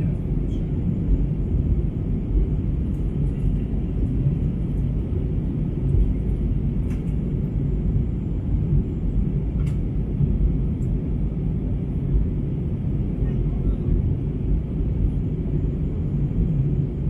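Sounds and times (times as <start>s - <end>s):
airliner cabin engine rumble: 0.0s - 17.0s.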